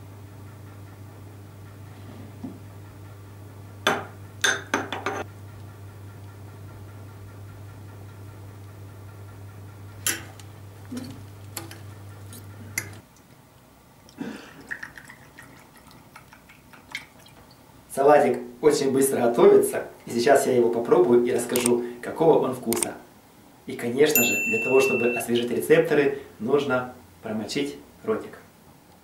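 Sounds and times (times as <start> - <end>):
steady low hum: 0.0 - 16.0
liquid pouring into glass: 14.6 - 17.5.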